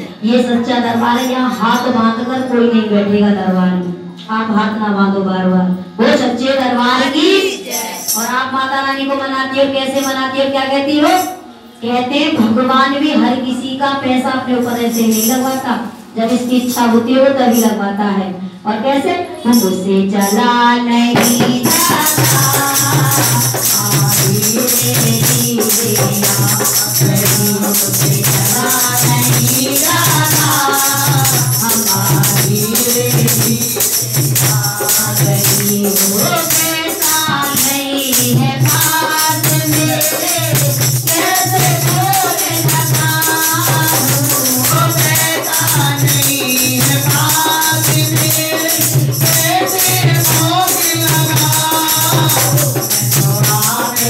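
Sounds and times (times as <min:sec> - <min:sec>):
jingling percussion: 0:00.0 - 0:02.5, 0:06.9 - 0:08.6, 0:09.9 - 0:11.8, 0:14.5 - 0:17.8, 0:19.5 - 0:54.0
woman singing into a microphone: 0:05.3 - 0:54.0.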